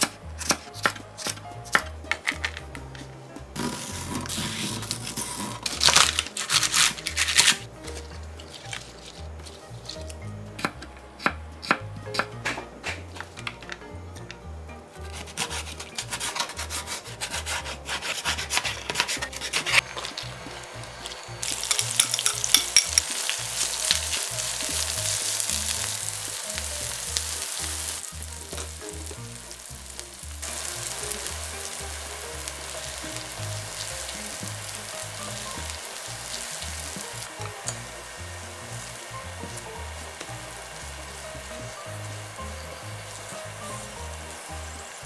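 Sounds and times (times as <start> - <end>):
onions sizzling and popping in oil: 0.0 - 45.0
soft background music: 0.0 - 45.0
spatula stirring pan: 15.0 - 44.8.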